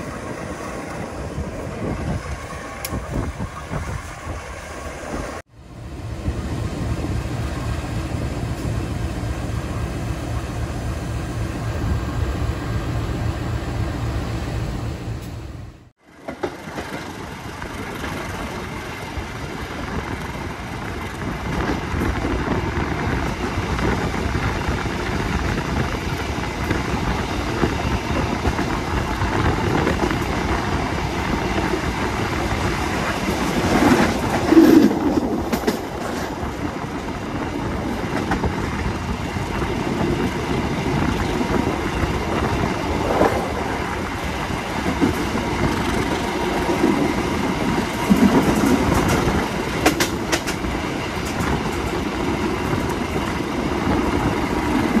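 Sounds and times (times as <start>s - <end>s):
train rumbling: 0.0s - 55.0s.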